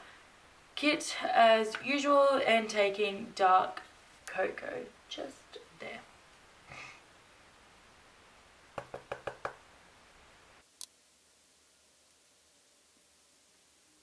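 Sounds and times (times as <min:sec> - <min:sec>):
brush tapping against palette: 0:08.8 - 0:09.6.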